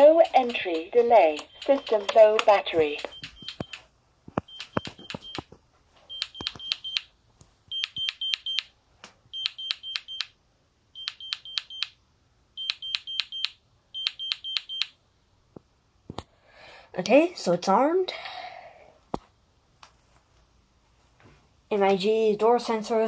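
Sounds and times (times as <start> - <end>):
alarm panel countdown beeps: 0.0 - 3.8, 9.4 - 10.3, 11.0 - 11.9, 12.6 - 14.9.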